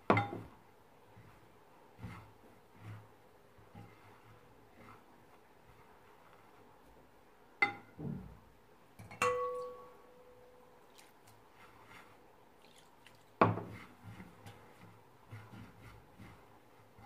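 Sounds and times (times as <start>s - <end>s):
hands rubbing damp grain: 1.1s - 6.9s, 10.9s - 17.0s
glass clinking against ceramic plate: 9.0s - 9.9s.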